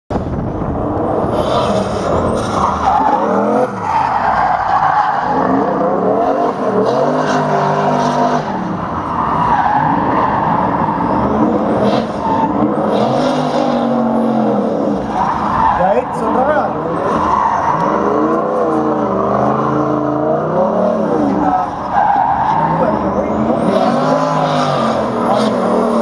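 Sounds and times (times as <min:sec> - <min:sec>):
car engine revving hard: 0:00.4 - 0:26.0
tyres spinning and squealing: 0:00.5 - 0:26.0.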